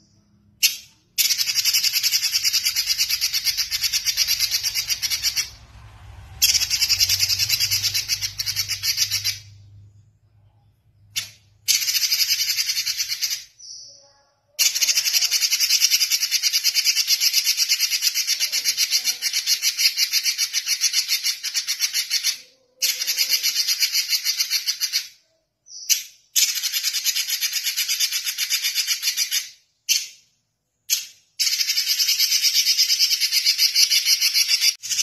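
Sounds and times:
bird singing rapid high notes: 0.0 - 10.0.

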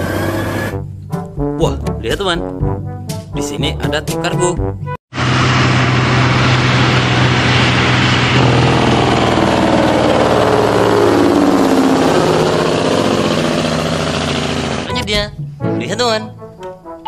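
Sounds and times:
diesel truck driving past: 5.1 - 14.9.

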